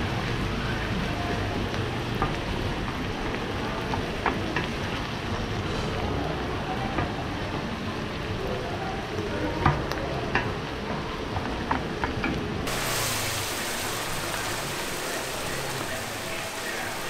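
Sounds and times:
food sizzling in a pan: 0:12.6 - 0:17.0.

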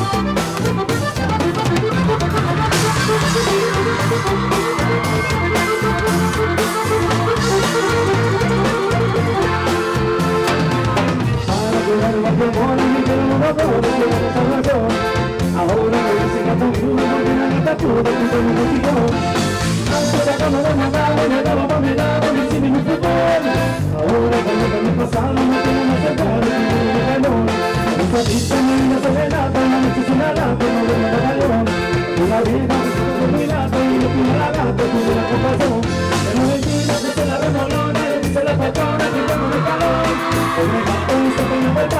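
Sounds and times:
accordion: 0:00.0 - 0:41.9
live band playing dance music: 0:00.0 - 0:41.9.

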